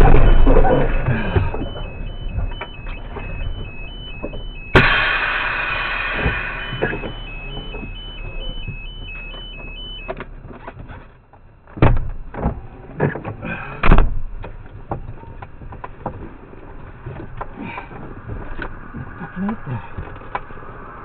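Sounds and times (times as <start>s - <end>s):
loud knocks and thuds: 0.0s - 5.1s, 11.7s - 13.2s, 13.8s - 16.2s
electronic two-tone beep: 0.0s - 5.2s, 6.1s - 10.1s.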